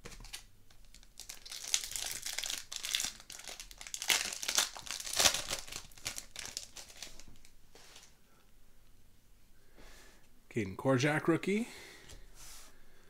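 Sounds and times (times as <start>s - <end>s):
foil pack crinkling: 0.0s - 8.1s.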